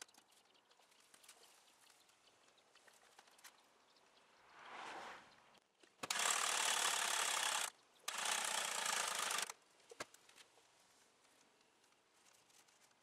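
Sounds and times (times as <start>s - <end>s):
starter motor cranking engine: 6.1s - 9.5s.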